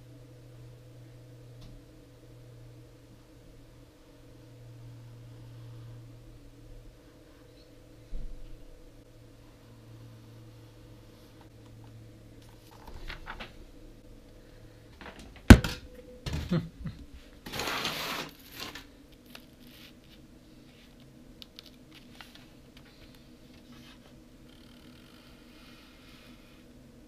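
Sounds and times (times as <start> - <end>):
board scraping rustle: 17.4 - 18.9.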